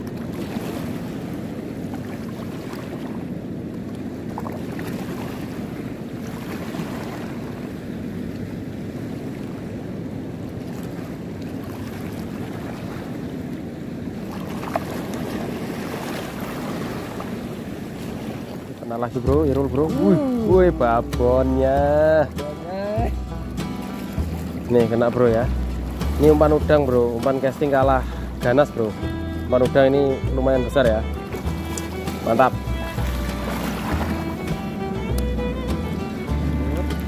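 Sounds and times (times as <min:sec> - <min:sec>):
sea water lapping: 0:00.0 - 0:37.0.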